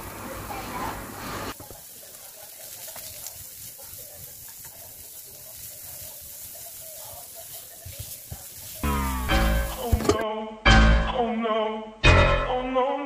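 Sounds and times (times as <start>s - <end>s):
shallots sizzling in a frying pan: 0.0s - 10.2s.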